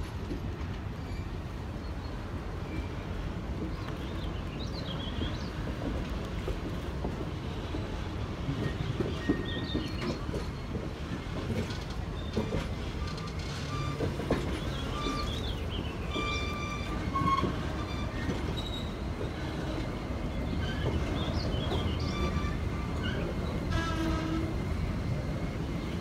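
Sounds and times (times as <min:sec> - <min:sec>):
train cars rumbling on track: 0:00.0 - 0:26.0
high-pitched wheel squeals: 0:12.2 - 0:15.4, 0:16.0 - 0:19.0, 0:21.7 - 0:24.4.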